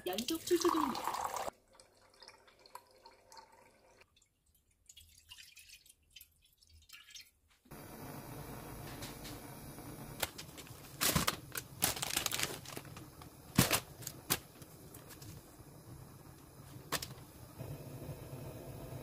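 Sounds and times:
plastic wrapper crinkling: 0:10.2 - 0:15.4.

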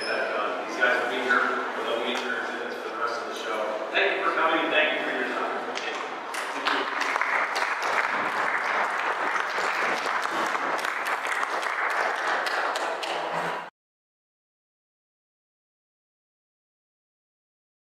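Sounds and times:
audience applauding: 0:06.4 - 0:13.7.

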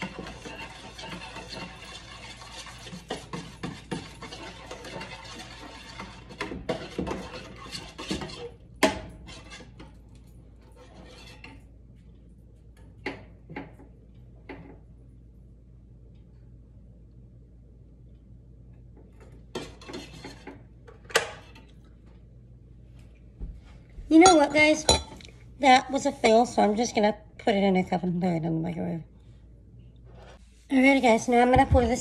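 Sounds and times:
spoon scraping and clinking in pot: 0:00.0 - 0:10.0, 0:10.6 - 0:11.7.

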